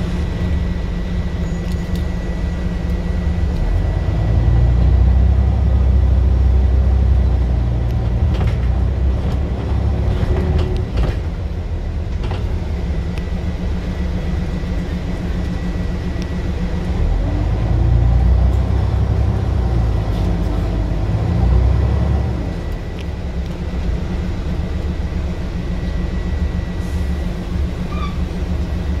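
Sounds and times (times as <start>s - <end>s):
bus engine thrashing: 0.0s - 29.0s.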